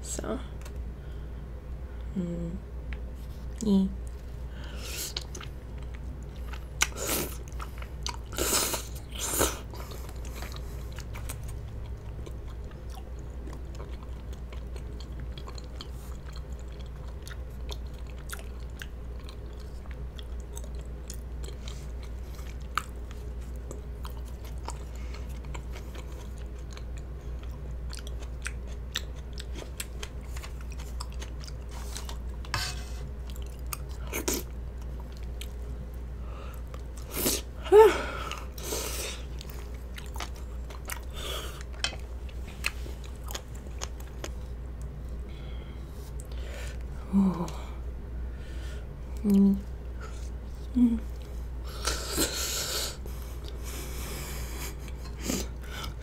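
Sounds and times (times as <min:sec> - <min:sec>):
close chewing with sticky clicks: 0:05.1 - 0:32.5, 0:33.2 - 0:37.1, 0:38.3 - 0:45.3, 0:53.1 - 0:53.6.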